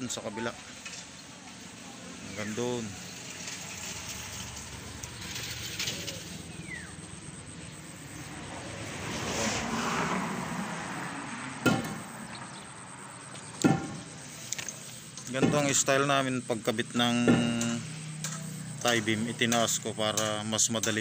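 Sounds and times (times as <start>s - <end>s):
outdoor background noise: 0.0s - 21.0s
passing motor vehicle: 0.0s - 21.0s
sharp knocks: 11.6s - 12.2s, 13.6s - 14.2s, 15.4s - 15.8s, 17.2s - 21.0s.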